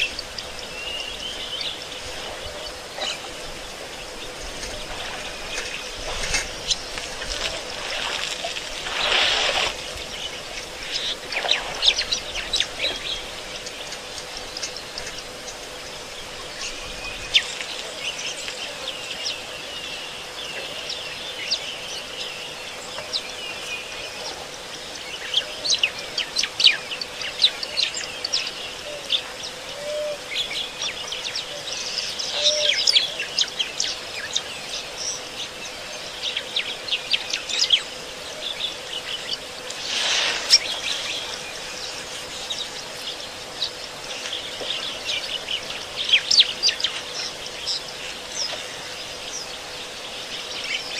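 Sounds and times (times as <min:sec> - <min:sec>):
faint steady hum: 0:00.0 - 0:50.9
wild birds chirping and calling: 0:00.0 - 0:50.9
brief loud rush: 0:39.8 - 0:40.8.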